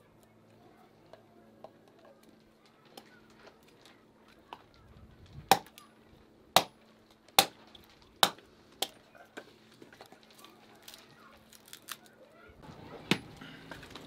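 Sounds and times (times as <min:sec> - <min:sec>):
hatchet chopping wood: 0:05.4 - 0:05.8, 0:06.6 - 0:06.8, 0:07.4 - 0:07.6, 0:08.2 - 0:09.0, 0:13.1 - 0:13.3.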